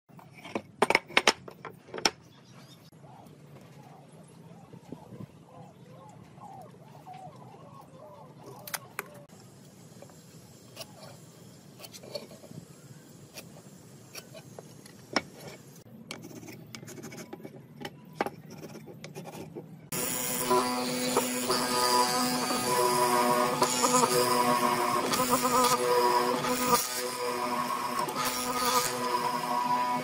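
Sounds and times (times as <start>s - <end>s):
pencil scratching on wood: 16.1s - 17.6s, 18.2s - 19.6s.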